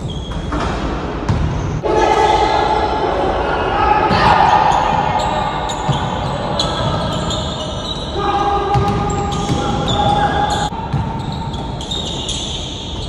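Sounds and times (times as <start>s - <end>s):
basketball bouncing on court: 0.6s - 1.7s, 8.7s - 12.2s
players' voices: 1.8s - 12.5s.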